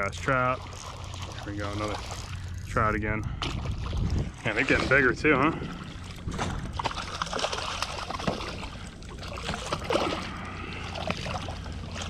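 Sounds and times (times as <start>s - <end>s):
fish splashing at water surface: 3.4s - 12.0s.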